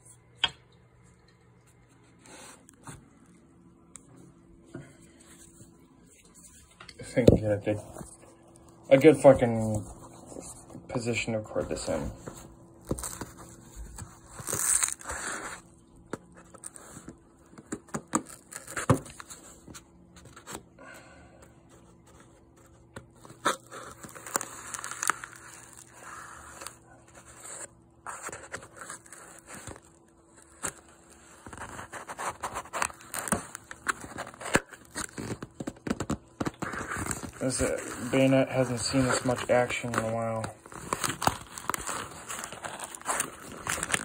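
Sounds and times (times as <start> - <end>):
tape tearing: 12.8 - 15.6, 16.4 - 19.4, 23.2 - 44.0.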